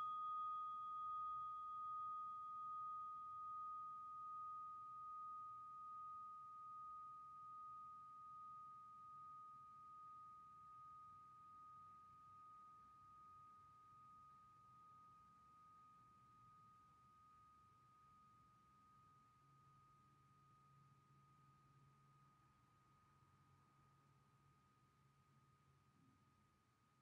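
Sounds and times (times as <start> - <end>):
meditation bell ringing: 0.0 - 9.4.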